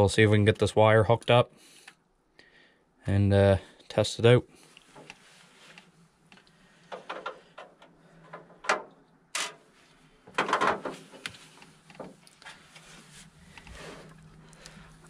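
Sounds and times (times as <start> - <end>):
rustling scrape: 12.5 - 14.2.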